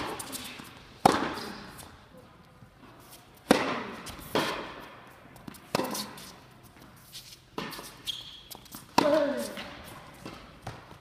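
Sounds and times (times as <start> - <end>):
tennis ball bouncing: 1.0 - 1.5, 3.4 - 6.9, 7.6 - 11.0
tennis racket hitting ball: 1.0 - 1.5, 3.4 - 6.3, 8.6 - 11.0.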